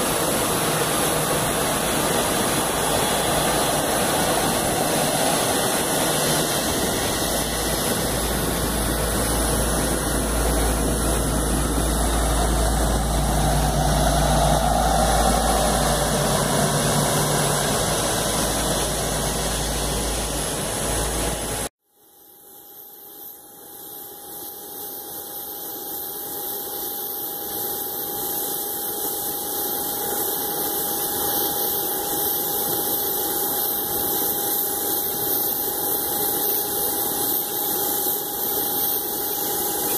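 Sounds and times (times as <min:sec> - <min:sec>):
jet engines rumbling: 0:00.0 - 0:21.7
jet engines whining and whistling: 0:00.0 - 0:21.7, 0:27.1 - 0:39.9.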